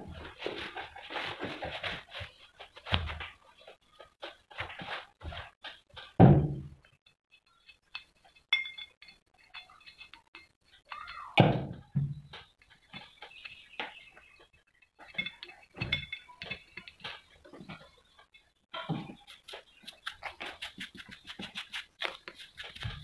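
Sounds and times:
light metallic clinks: 7.9 - 11.2
cloth rubbing on metal: 19.2 - 23.0.

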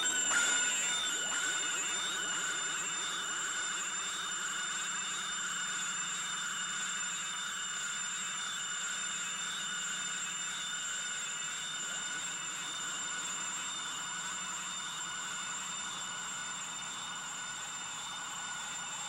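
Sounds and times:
steady high synth tones: 0.0 - 4.9.

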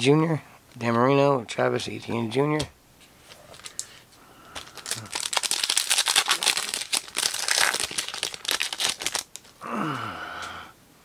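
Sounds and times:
foil pack crinkling: 3.4 - 9.6.

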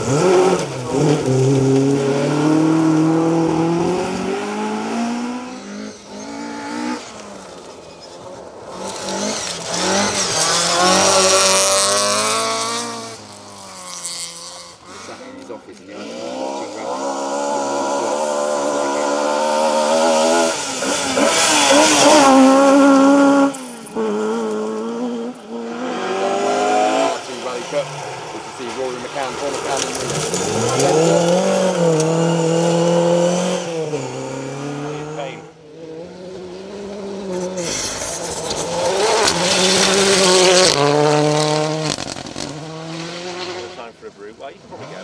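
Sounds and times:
second car engine revving: 0.0 - 7.7, 8.6 - 45.0
rally car engine revving: 0.0 - 45.0
tyres hissing on gravel: 37.6 - 40.2.

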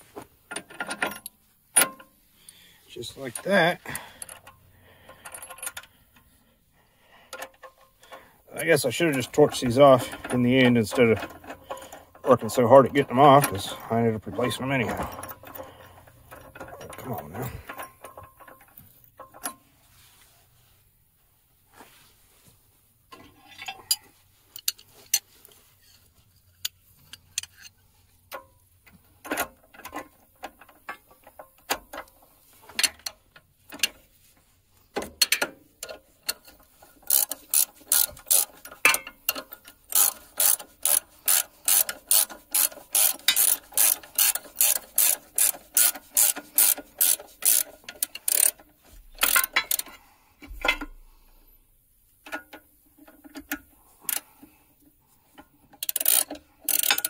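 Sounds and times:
ratchet wrench clicking: 26.6 - 28.4, 35.2 - 48.6, 49.2 - 50.0, 52.2 - 54.3, 55.8 - 57.0.

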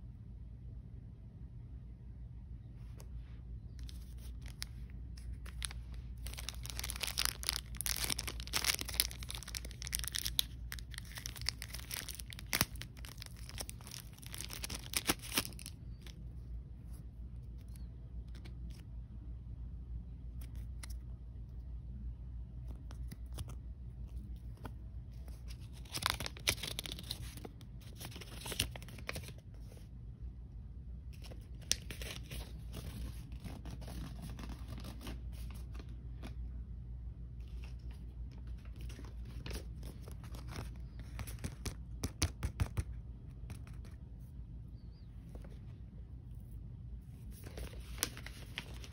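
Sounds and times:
low steady hum: 0.0 - 48.9
paper packaging rustling: 3.7 - 16.2, 22.8 - 29.8, 31.2 - 36.4, 37.4 - 43.9, 47.2 - 48.9.

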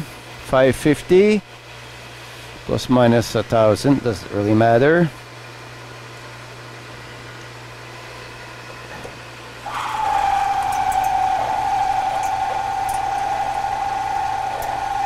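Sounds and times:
high-pitched cutting whine: 9.7 - 15.0
metal lathe humming: 9.7 - 15.0.

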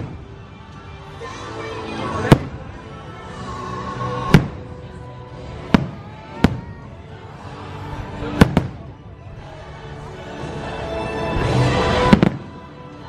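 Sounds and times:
fireworks bursting: 0.0 - 0.9, 2.2 - 2.9, 4.2 - 5.0, 5.6 - 7.0, 8.2 - 9.1, 11.3 - 12.8
background music: 0.0 - 13.0.

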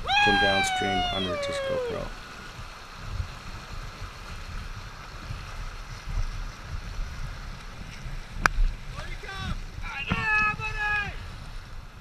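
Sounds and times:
river rapid rushing: 0.0 - 5.2
wind rumbling on microphone: 0.0 - 12.0.

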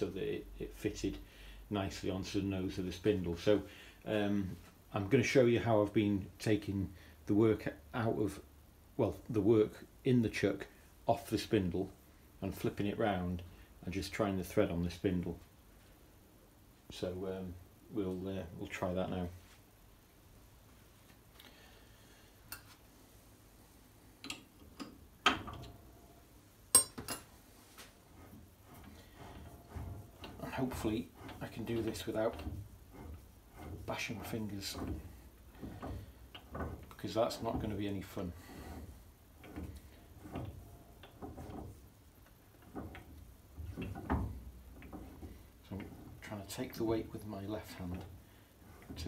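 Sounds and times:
metallic clicks and knocks: 24.2 - 25.8, 26.7 - 27.3, 39.4 - 46.2
metallic clicks and knocks on lathe: 24.2 - 25.8, 28.2 - 37.8, 38.6 - 46.2.

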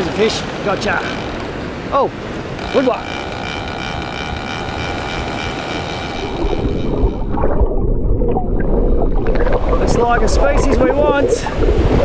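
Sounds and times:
breaking surf: 0.0 - 7.8
underwater surf rush: 0.0 - 12.0
wind: 0.0 - 12.0.

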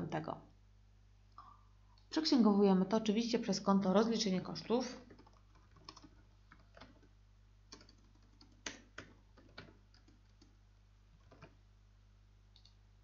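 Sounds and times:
faint keyboard typing: 4.8 - 11.6.

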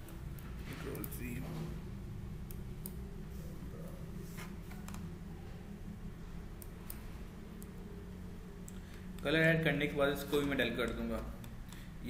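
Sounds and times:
steady low hum: 0.0 - 12.0
computer mouse clicks: 2.4 - 3.0, 4.7 - 5.1, 6.6 - 7.8, 10.2 - 11.9.

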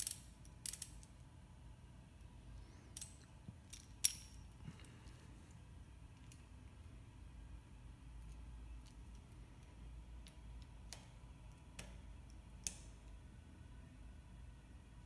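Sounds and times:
metallic tool clicks: 0.0 - 1.1.

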